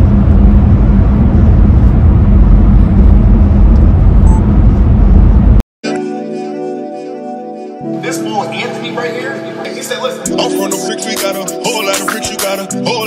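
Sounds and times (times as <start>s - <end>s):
car interior rumble: 0.0s - 5.6s.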